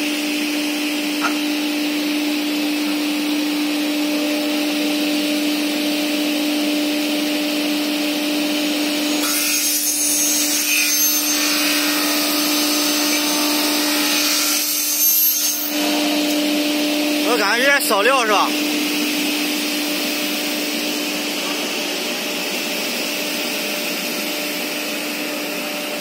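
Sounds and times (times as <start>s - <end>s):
saw blade cutting metal: 9.1s - 16.5s
saw motor humming: 9.2s - 26.0s.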